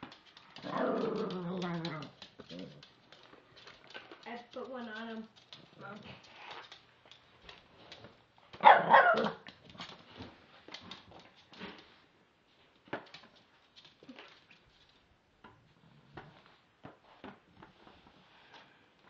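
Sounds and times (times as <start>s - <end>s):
puppy barking: 8.6s - 9.4s.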